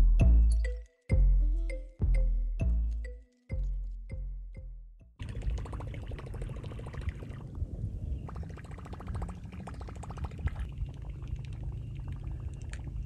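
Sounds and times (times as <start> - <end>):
wind rumble on microphone: 5.2 - 13.0.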